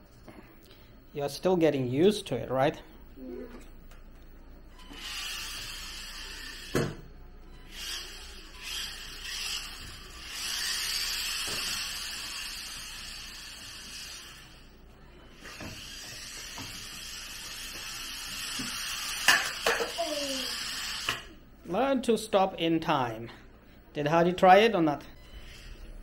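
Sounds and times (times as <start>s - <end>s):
toy car motor whirring: 4.8s - 6.8s, 7.6s - 14.7s, 15.3s - 21.3s, 25.3s - 26.0s.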